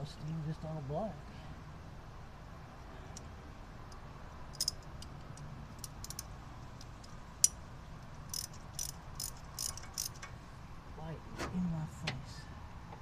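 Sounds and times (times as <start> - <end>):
metallic wrench clicks: 3.9 - 7.6, 8.3 - 10.3.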